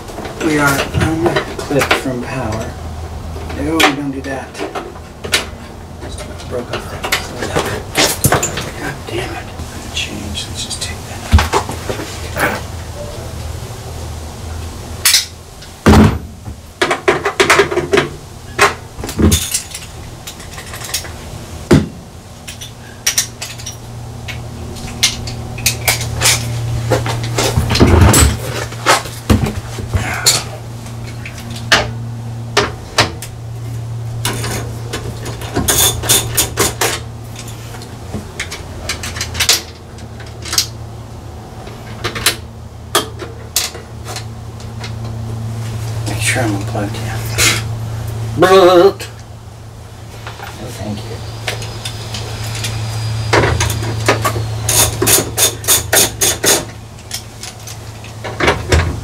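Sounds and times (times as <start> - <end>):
metal tools clinking: 19.2 - 21.2, 22.4 - 26.6, 34.2 - 37.8.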